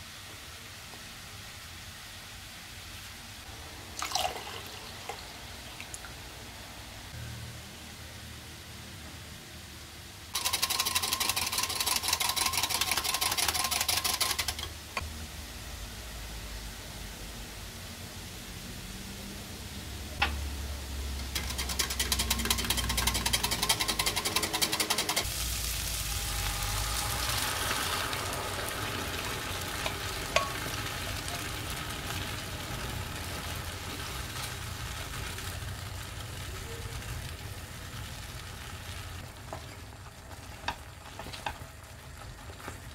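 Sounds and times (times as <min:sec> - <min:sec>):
food sizzling in frying pan: 0:10.3 - 0:15.2, 0:17.6 - 0:42.9
rapid rhythmic rattle: 0:10.4 - 0:14.7, 0:21.3 - 0:25.3
rapid mechanical clicking: 0:10.4 - 0:14.8, 0:21.2 - 0:25.3
utensil clicking against pan: 0:21.2 - 0:25.3
whirring tone: 0:25.9 - 0:29.0.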